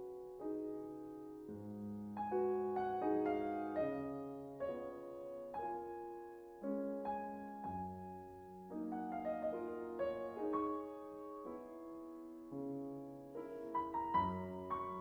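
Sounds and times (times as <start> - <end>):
solo piano piece: 0.0 - 15.0.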